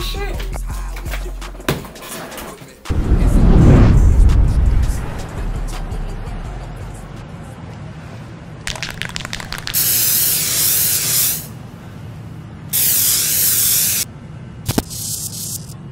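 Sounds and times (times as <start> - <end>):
spray can rattle: 8.7 - 11.5, 12.8 - 14.0, 14.7 - 15.8
spray paint hissing: 8.7 - 11.5, 12.7 - 14.1, 14.7 - 15.8.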